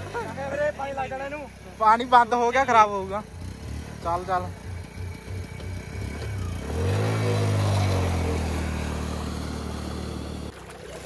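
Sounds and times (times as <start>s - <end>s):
motorcycle engine revving: 0.0s - 10.5s
water splashing: 10.5s - 11.0s.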